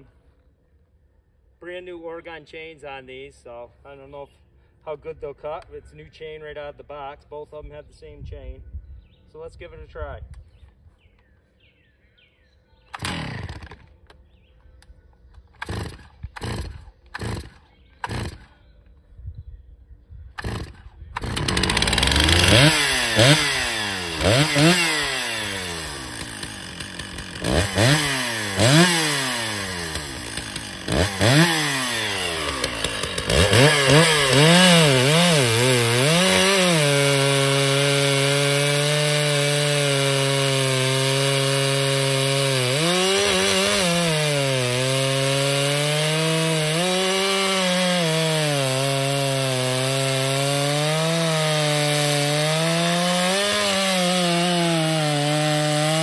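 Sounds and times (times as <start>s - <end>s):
chainsaw pull-start: 12.9s - 13.9s, 15.6s - 18.5s, 20.4s - 56.0s
chainsaw cutting through log: 13.0s - 13.9s, 15.6s - 18.6s, 20.4s - 56.0s
chainsaw revving: 13.0s - 13.9s, 15.6s - 18.5s, 20.4s - 56.0s.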